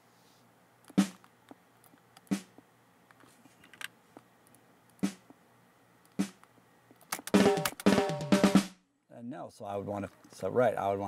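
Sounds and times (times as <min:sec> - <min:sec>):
snare drum hits: 0:01.0 - 0:01.2, 0:05.0 - 0:05.2, 0:06.2 - 0:06.4, 0:07.3 - 0:08.8.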